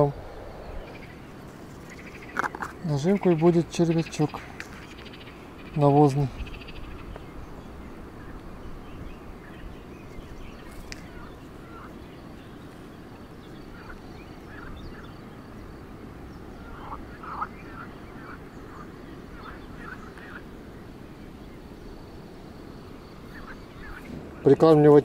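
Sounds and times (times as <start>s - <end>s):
low background rumble: 0.0s - 24.6s.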